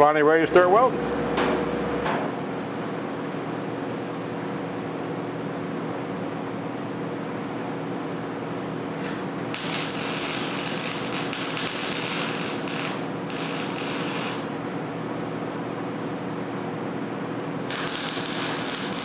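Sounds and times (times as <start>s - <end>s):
steady hum: 0.0s - 19.0s
arc welder crackling hiss: 8.9s - 14.5s, 17.6s - 19.0s.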